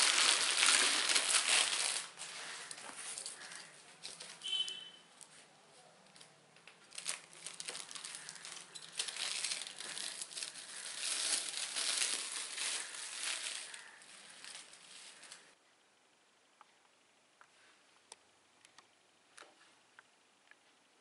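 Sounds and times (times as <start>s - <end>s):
plastic wrap crinkling: 0.0s - 4.6s, 6.1s - 15.6s.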